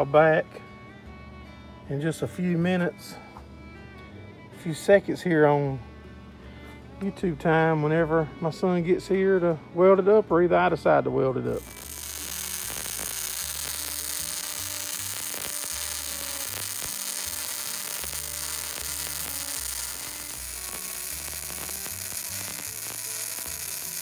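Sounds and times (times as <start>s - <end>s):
arc welding crackling sizzle: 11.5s - 24.0s.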